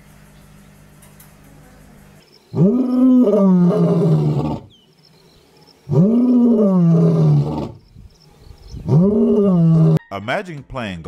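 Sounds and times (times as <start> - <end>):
lion roaring: 2.5 - 4.7, 5.9 - 7.8, 8.8 - 10.0.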